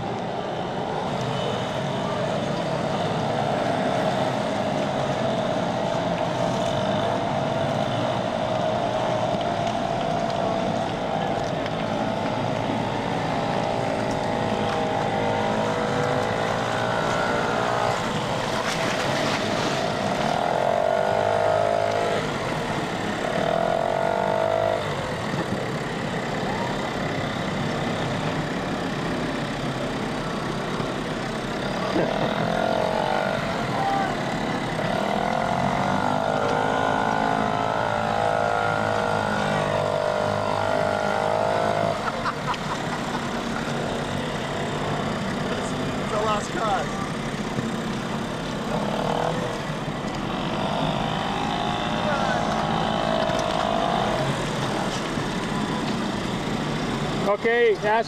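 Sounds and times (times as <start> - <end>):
small boat motors running: 0.0 - 58.0.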